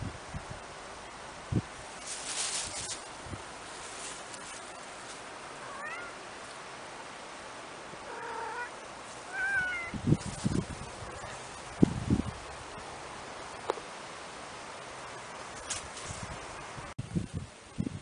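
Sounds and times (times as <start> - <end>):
steady hiss: 0.0 - 18.0
kitten meowing: 5.6 - 6.2, 8.1 - 10.0.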